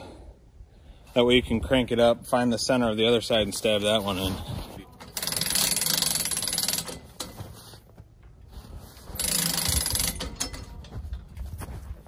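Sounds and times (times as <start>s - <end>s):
hand-crank winch clicking: 4.9s - 7.6s, 9.0s - 11.2s.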